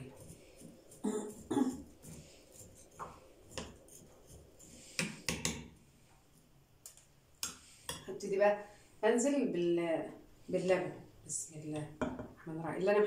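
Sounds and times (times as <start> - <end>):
spoon scraping clay pots: 0.0 - 5.8.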